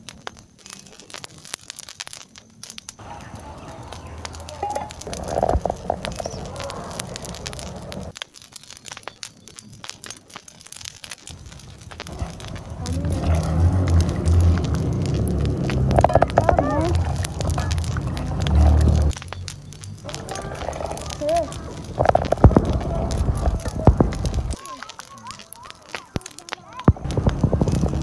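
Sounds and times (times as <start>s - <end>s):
wood fire crackling and popping: 0.0s - 28.0s
dull background noise: 3.0s - 8.1s
wind buffeting microphone: 3.0s - 8.1s, 11.3s - 24.6s, 26.9s - 28.0s.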